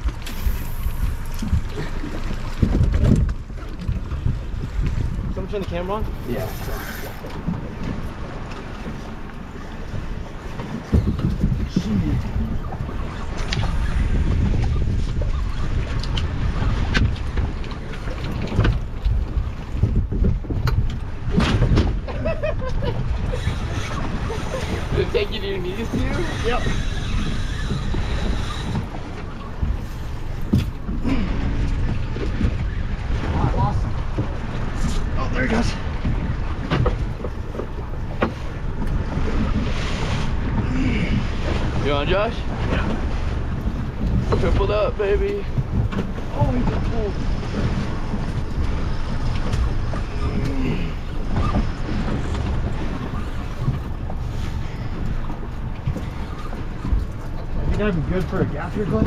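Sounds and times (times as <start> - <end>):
boat engine rumble: 0.0 - 59.0
wind on microphone: 0.0 - 59.0.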